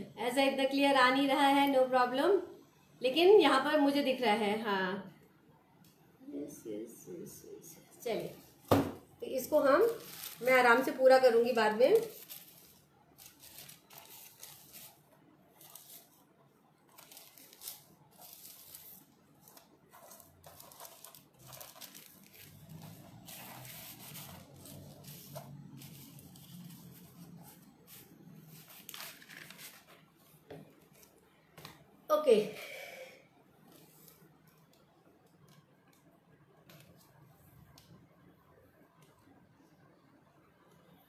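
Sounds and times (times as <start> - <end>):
carbon paper rustling and crinkling: 9.6 - 11.0, 11.6 - 16.2, 16.9 - 30.1
paper scraping over canvas board: 12.0 - 16.2, 16.9 - 30.0.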